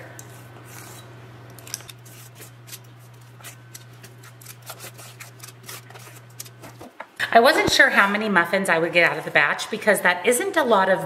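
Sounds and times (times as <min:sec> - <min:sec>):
scoop scraping batter in bowl: 0:01.8 - 0:06.6.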